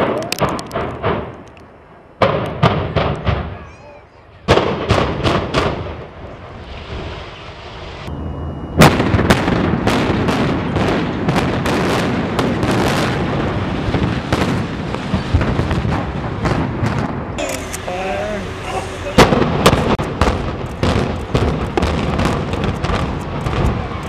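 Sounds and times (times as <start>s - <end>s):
building collapse rumble: 4.4s - 17.4s, 19.2s - 24.0s
explosive charges cracking: 8.8s - 17.4s, 19.2s - 24.0s.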